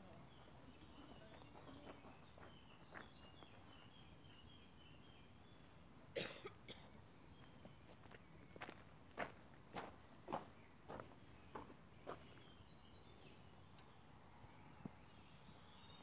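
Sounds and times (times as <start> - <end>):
faint twittering: 0.0 - 16.0
high insect chirp: 0.0 - 16.0
cough: 6.1 - 7.0.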